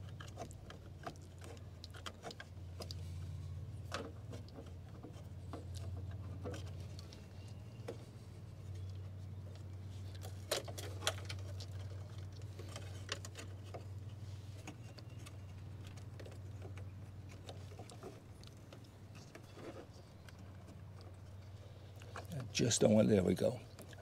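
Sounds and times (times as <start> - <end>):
hands clicking and scraping: 0.0 - 22.6.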